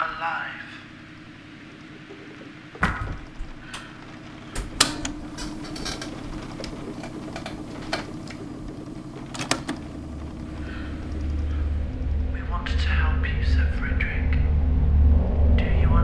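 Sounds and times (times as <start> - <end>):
steady low hum: 0.0 - 16.0
sharp knocks and clicks: 2.1 - 10.4.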